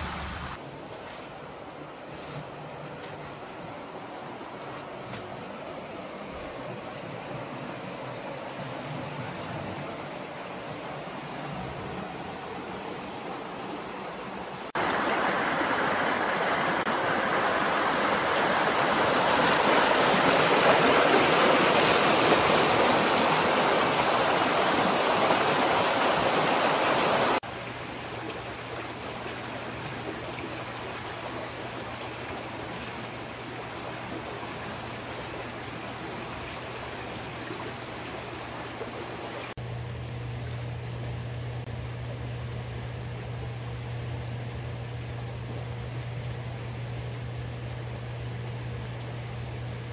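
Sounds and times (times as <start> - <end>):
water rushing over rocks: 1.6 - 39.6
low hum: 39.6 - 49.9.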